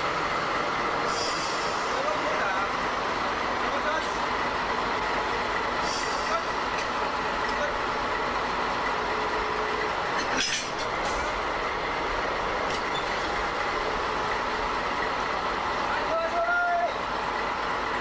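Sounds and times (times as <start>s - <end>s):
sharp metallic clank: 10.1s - 11.3s.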